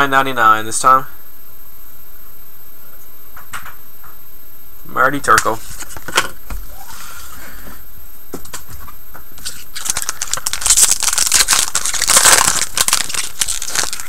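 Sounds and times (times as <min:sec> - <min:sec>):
foil wrapper tearing and crinkling: 0:09.4 - 0:14.0.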